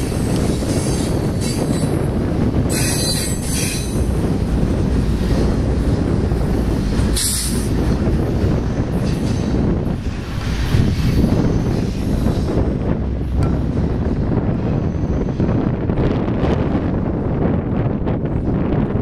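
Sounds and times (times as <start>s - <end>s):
wheels squealing on rail: 0.0s - 4.4s, 6.6s - 12.9s, 14.6s - 15.7s
freight train cars rumbling: 0.0s - 19.0s.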